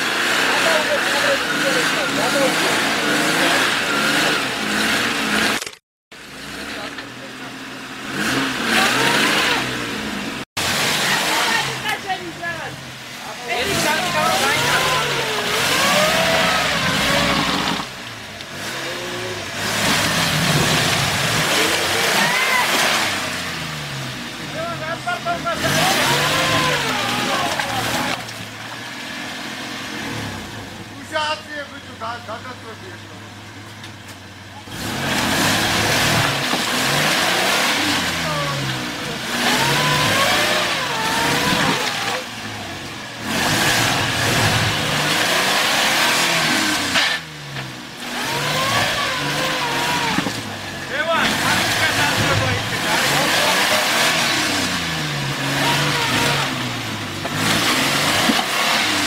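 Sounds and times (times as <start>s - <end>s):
suv engine revving in mud: 0.0s - 59.0s.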